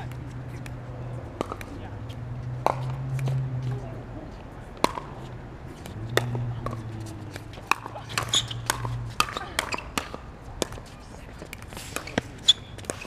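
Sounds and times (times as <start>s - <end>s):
ball bouncing on hard court: 1.4s - 1.7s, 2.6s - 3.8s, 4.8s - 10.9s.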